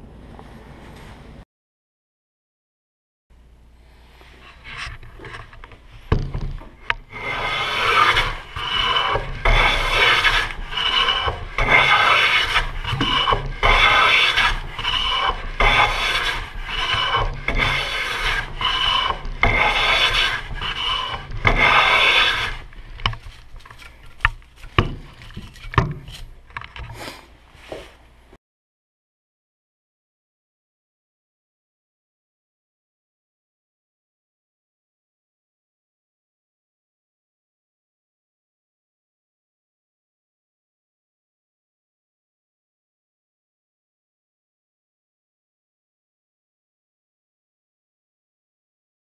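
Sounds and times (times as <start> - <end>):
light scrapes: 3.8 - 6.1, 6.7 - 28.0
bench plane shaving wood: 6.9 - 26.3.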